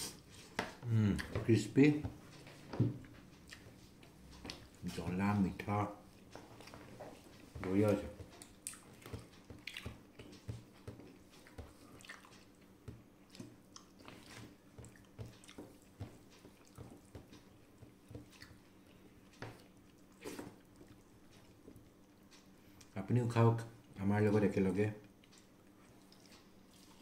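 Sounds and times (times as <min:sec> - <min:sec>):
soft chewing and lip smacks: 0:03.0 - 0:04.8, 0:06.1 - 0:23.0, 0:25.0 - 0:27.0.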